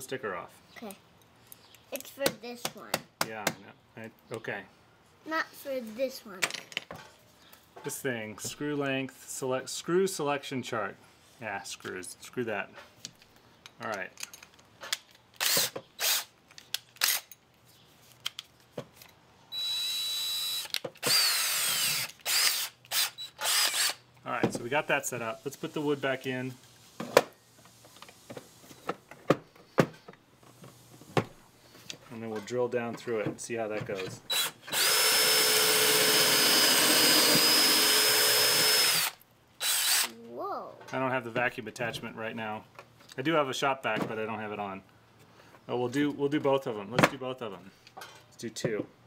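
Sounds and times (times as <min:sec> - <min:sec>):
cordless drill spinning: 0:15.4 - 0:16.3, 0:19.5 - 0:24.0, 0:34.3 - 0:40.2.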